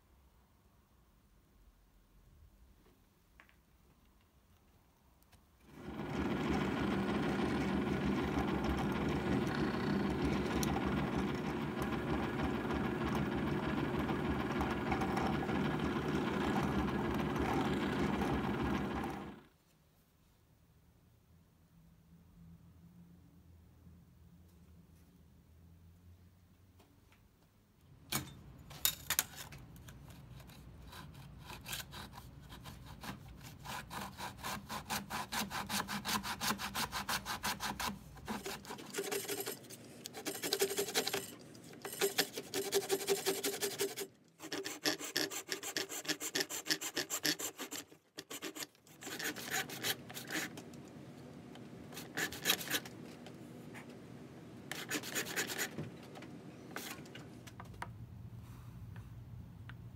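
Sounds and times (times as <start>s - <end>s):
hand saw cutting wood: 30.2s - 50.7s, 51.9s - 53.0s, 54.7s - 55.8s.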